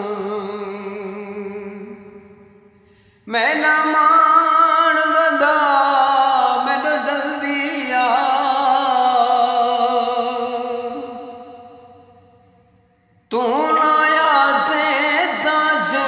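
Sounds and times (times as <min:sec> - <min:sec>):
man singing a long held note: 0:00.0 - 0:02.5, 0:13.3 - 0:16.0.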